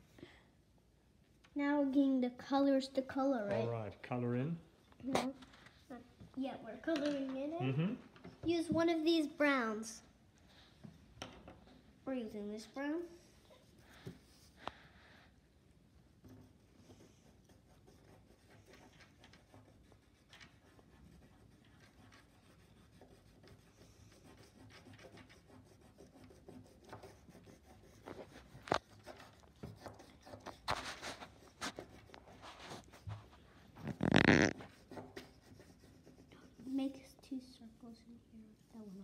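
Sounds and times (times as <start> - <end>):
crayon scratching on paper: 13.0 - 14.6, 16.1 - 37.2.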